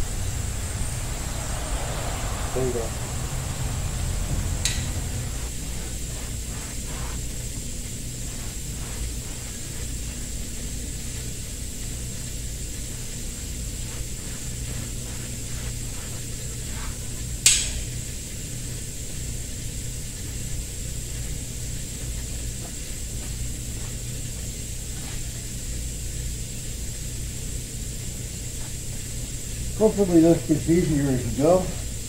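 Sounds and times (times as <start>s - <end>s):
thin high whine: 0.0s - 18.4s
low machine hum: 0.0s - 32.0s
hands rustling fabric: 5.1s - 11.3s
sharp click: 17.4s - 17.9s.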